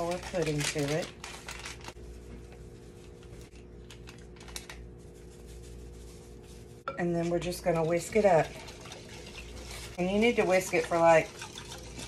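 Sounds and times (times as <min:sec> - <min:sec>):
plastic packet crinkling and clicking: 0:00.0 - 0:02.0, 0:03.6 - 0:04.9.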